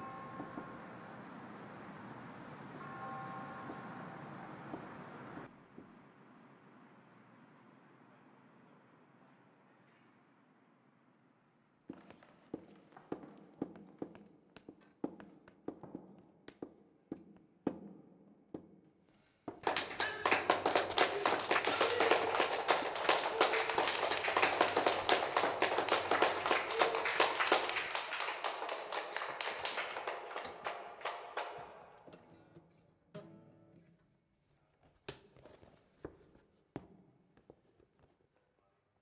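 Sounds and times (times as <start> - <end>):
audience applause: 19.6 - 32.0.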